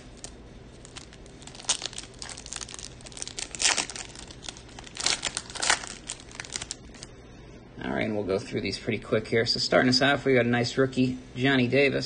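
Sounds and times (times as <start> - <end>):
foil wrapper crackling: 0.0 - 7.1.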